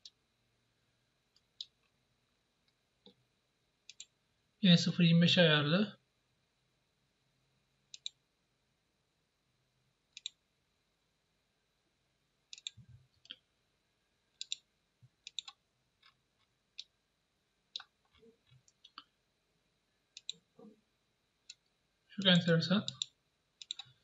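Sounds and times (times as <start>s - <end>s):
computer mouse clicks: 3.9s - 4.1s, 7.9s - 8.2s, 10.1s - 10.4s, 12.5s - 13.4s, 14.4s - 14.6s, 15.2s - 16.2s, 20.2s - 20.4s, 22.2s - 24.0s.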